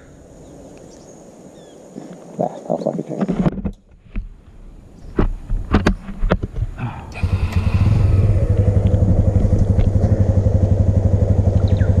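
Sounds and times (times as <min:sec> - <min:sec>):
motorcycle engine pulling away: 0:06.8 - 0:12.0.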